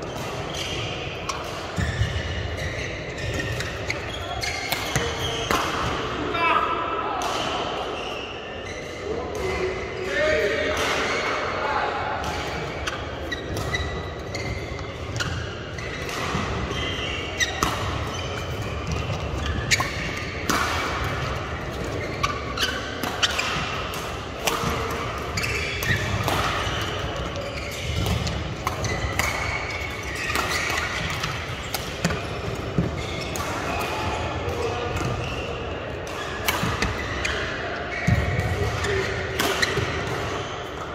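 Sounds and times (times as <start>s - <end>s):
shoes squeaking on court floor: 0.0s - 6.0s, 7.9s - 9.6s, 12.2s - 40.9s
rackets striking shuttlecock: 12.2s - 40.9s.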